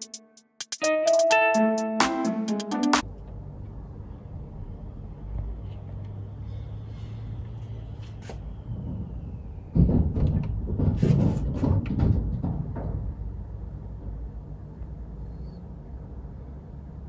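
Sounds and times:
heavy knocks on roof: 9.7 - 13.3.

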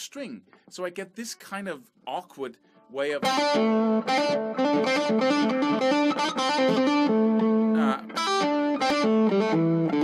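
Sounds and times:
electric guitar single-note line: 3.2 - 10.0.

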